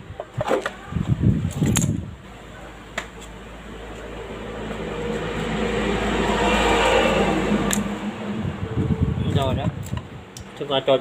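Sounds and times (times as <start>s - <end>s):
fan mechanical hum: 0.0s - 11.0s.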